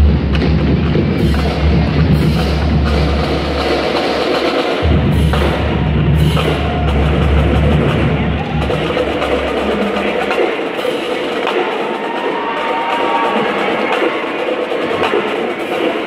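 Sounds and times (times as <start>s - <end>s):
bass drums: 0.0s - 10.5s
snare drums: 0.0s - 16.0s.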